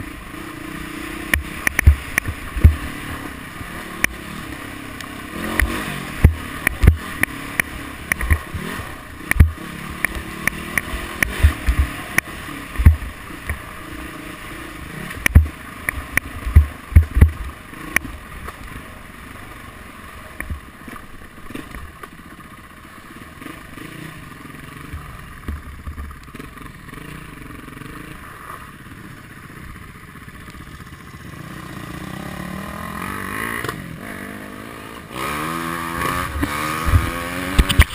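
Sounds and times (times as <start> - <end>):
dirt bike engine running: 0.0 - 37.9
knocks and thuds over bumps: 1.3 - 3.2, 5.5 - 13.7, 15.1 - 18.2, 36.1 - 37.9.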